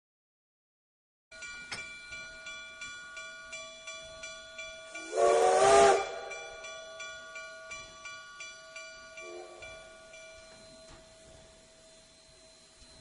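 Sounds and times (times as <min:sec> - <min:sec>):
locomotive bell ringing: 0:01.3 - 0:13.0
train whistle chord: 0:04.9 - 0:06.8, 0:09.2 - 0:09.9.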